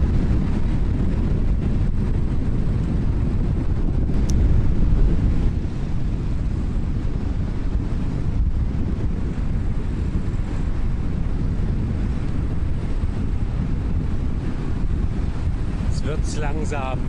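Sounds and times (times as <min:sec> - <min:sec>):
wind rumbling on microphone: 0:00.0 - 0:17.0.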